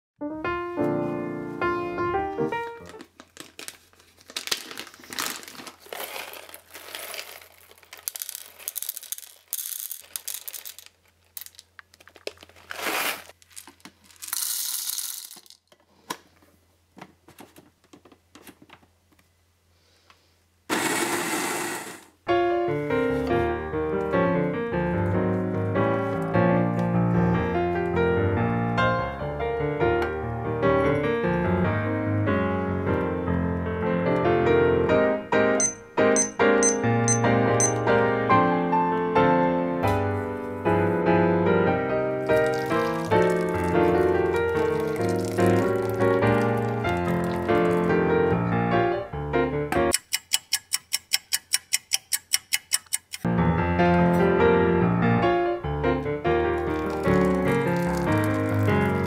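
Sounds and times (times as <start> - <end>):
piano music: 0.2 - 3.1, 22.3 - 50.0, 53.3 - 59.0
foil bag crinkling: 2.8 - 15.7, 42.2 - 48.0, 56.6 - 59.0
coffee beans rattling: 3.0 - 15.7, 42.3 - 47.9, 56.6 - 59.0
electric coffee grinder running: 20.7 - 22.0.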